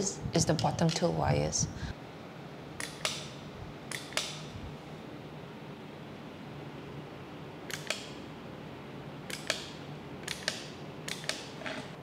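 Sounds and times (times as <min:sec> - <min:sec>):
steady low hum: 0:00.0 - 0:12.0
wall switch clicks: 0:02.8 - 0:04.4, 0:07.7 - 0:08.2, 0:09.3 - 0:11.5.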